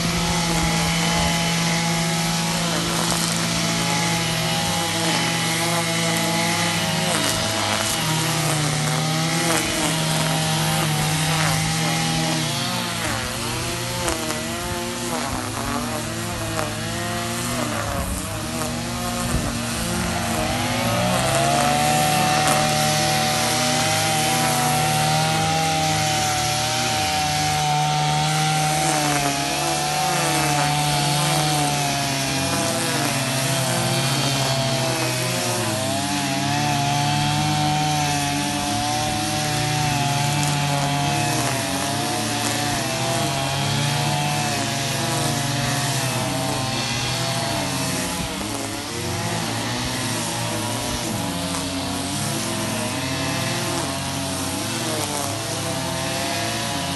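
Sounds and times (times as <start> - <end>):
string trimmer engines running: 0.0 - 56.9.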